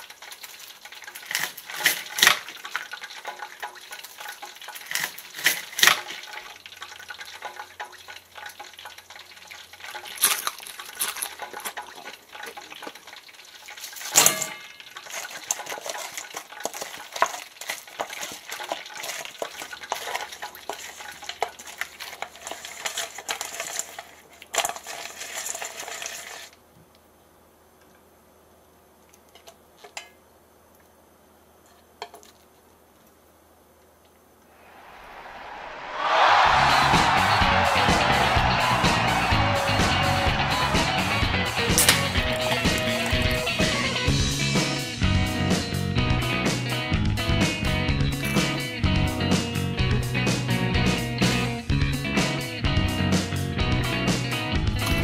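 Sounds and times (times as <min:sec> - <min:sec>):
utensils scraping and clinking cookware: 0:00.0 - 0:13.0, 0:13.7 - 0:26.5, 0:41.5 - 0:44.1.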